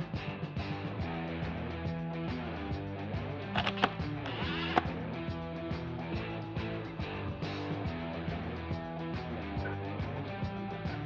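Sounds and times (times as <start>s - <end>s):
guitar music with steady beat: 0.0s - 11.0s.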